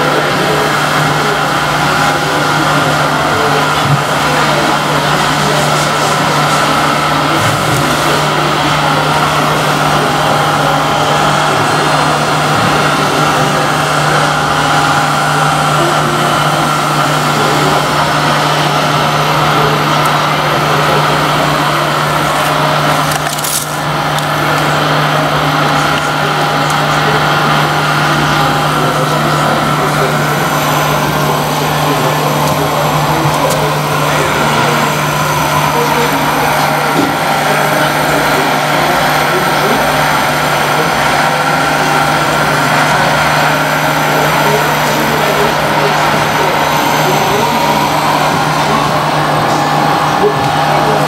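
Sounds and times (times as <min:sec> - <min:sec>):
hydraulic pump whine: 0:00.0 - 0:51.0.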